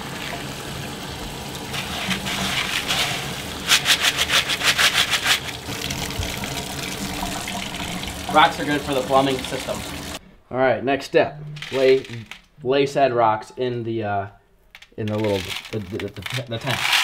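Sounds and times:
faucet running into colander: 0.0s - 10.2s.

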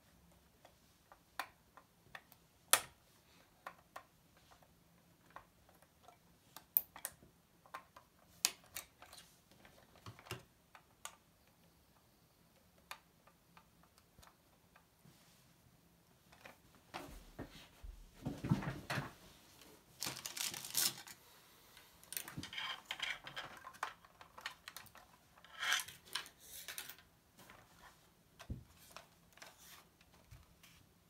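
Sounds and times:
model car handling clicks and taps: 3.6s - 11.7s.

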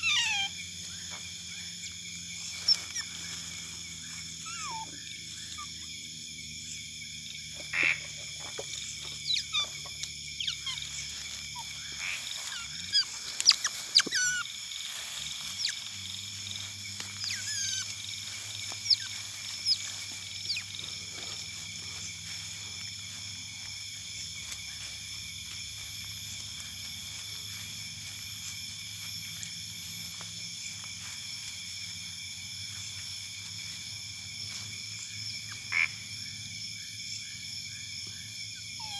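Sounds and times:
otters chirping and squeaking: 0.0s - 5.9s, 7.5s - 23.8s
insects and frogs chorus: 0.0s - 38.9s.

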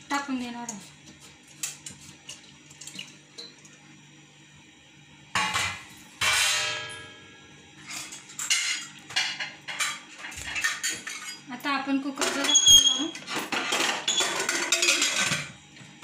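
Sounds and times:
metal utensils clanging: 7.9s - 11.5s, 12.2s - 15.5s.

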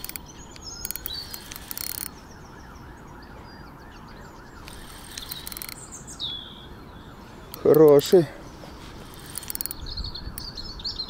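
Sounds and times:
fishing reel clicking: 0.0s - 2.1s, 4.6s - 5.8s, 9.0s - 10.5s
faint bird chirps: 0.0s - 11.0s
wavering siren-like tone: 0.8s - 7.7s.

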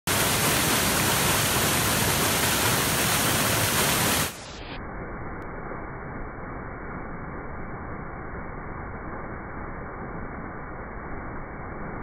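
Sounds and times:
waterfall crashing onto rocks: 0.1s - 4.6s.

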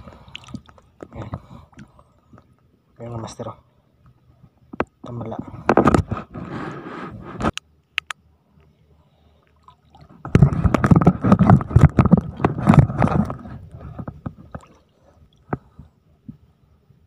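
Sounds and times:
wading through shallow water: 0.0s - 2.6s, 8.8s - 16.2s.

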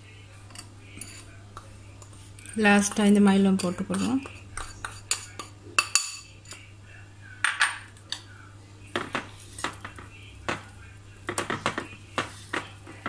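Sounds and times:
spoon clinking and scraping bowl: 0.4s - 6.7s.

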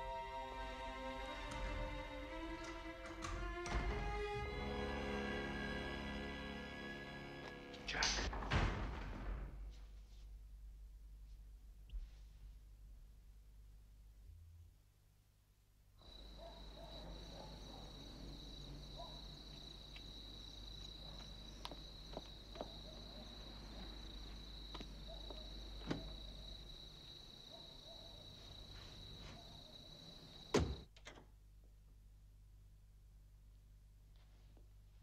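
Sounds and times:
loud thump: 8.2s - 9.7s
crickets trilling: 16.0s - 30.8s.

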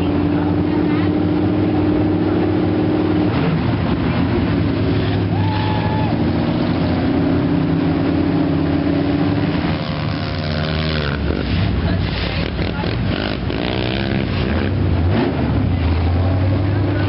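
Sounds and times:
off-road engines droning: 0.0s - 17.0s.

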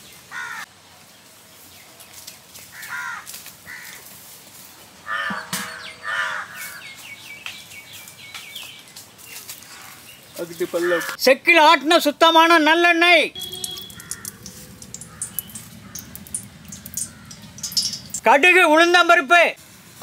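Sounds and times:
crows cawing: 0.3s - 0.7s, 2.7s - 4.1s, 5.0s - 7.0s, 10.8s - 11.2s, 13.5s - 18.2s
small birds chirping: 5.1s - 11.2s, 13.3s - 18.6s.

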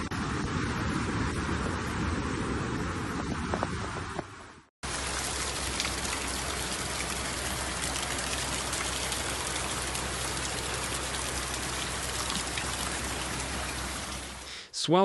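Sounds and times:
floodwater rushing through street: 4.8s - 14.6s
heavy rain patter: 4.8s - 14.6s.

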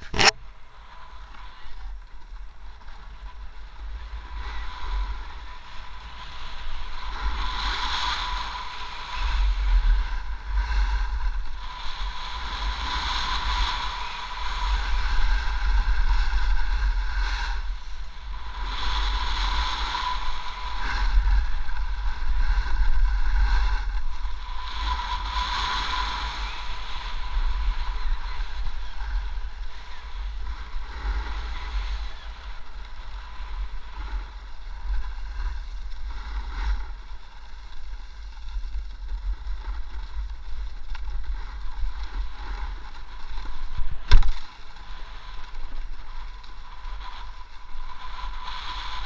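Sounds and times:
skis scraping packed snow: 0.0s - 49.0s.

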